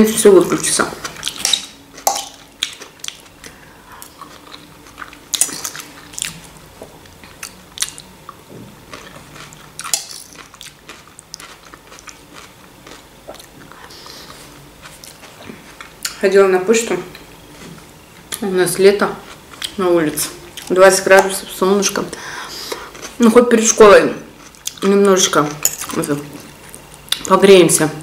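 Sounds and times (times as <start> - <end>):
chewing and crunching food: 0.9 - 16.2, 19.2 - 19.8, 22.7 - 23.4, 24.2 - 27.4.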